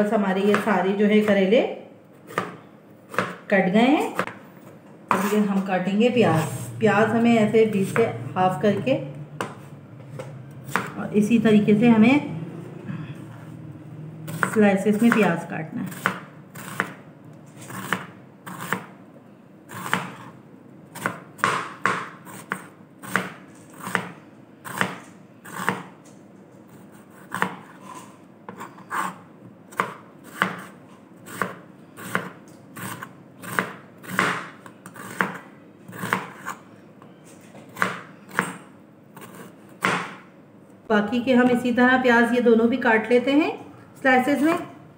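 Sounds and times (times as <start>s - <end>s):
knife chopping on cutting board: 2.3s - 3.5s, 4.1s - 4.4s, 5.1s - 5.4s, 9.4s - 11.0s, 14.3s - 15.3s, 15.9s - 17.0s, 17.6s - 18.9s, 19.7s - 20.3s, 21.0s - 25.9s, 26.9s - 36.6s, 37.7s - 38.6s, 39.2s - 40.2s.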